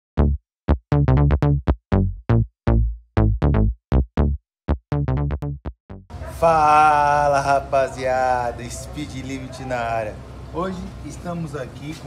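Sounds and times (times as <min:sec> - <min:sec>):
punchy synth and drum hits: 0:00.2 - 0:06.0.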